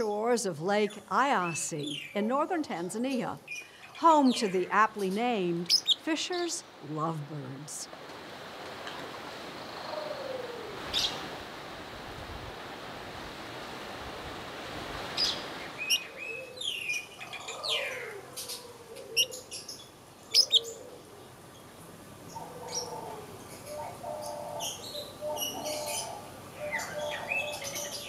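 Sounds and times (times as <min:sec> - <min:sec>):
lovebirds chirping: 0:00.0 - 0:07.9, 0:15.2 - 0:20.9, 0:21.5 - 0:28.0
steady background hiss: 0:00.0 - 0:28.0.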